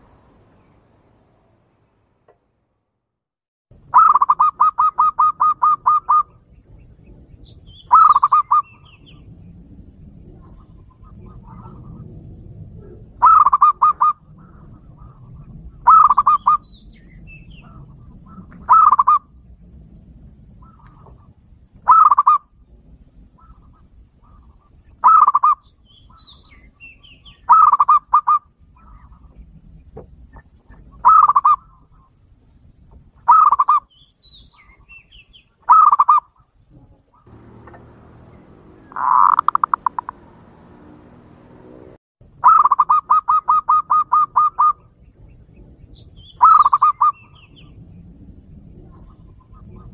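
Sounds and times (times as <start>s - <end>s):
dove cooing: 4.0s - 6.4s, 7.9s - 8.7s, 12.8s - 14.1s, 15.9s - 16.6s, 17.6s - 19.2s, 21.9s - 22.4s, 31.0s - 31.6s, 37.3s - 41.8s.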